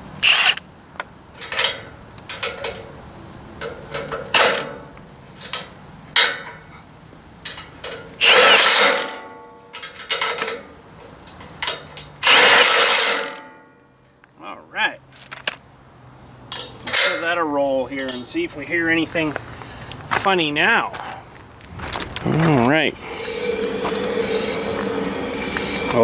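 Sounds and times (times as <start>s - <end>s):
electric impact wrench: 0.2s - 0.6s, 8.2s - 9.3s, 12.2s - 13.4s
metal clicks and tool knocks: 0.5s - 2.9s, 3.6s - 4.8s, 5.4s - 6.6s, 7.4s - 8.2s, 16.5s - 17.3s.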